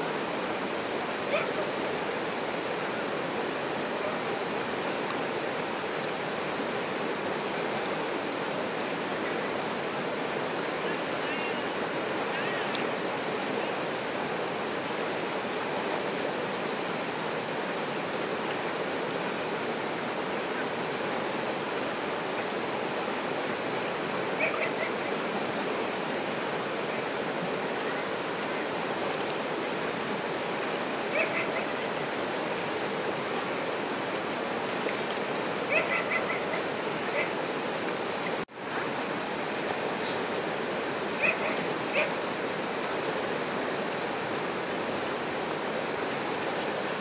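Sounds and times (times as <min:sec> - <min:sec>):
water rushing over rocks: 0:00.0 - 0:47.0
faint high-pitched calls: 0:24.4 - 0:25.2, 0:35.7 - 0:37.4, 0:41.2 - 0:42.2.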